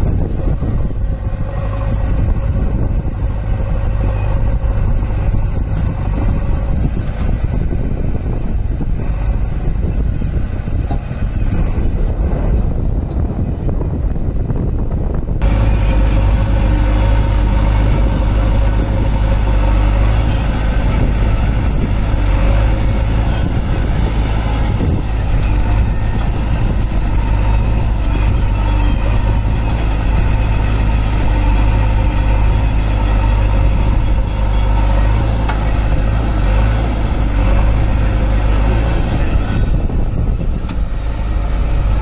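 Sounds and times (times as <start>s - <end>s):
diesel engine droning: 0.0s - 42.0s.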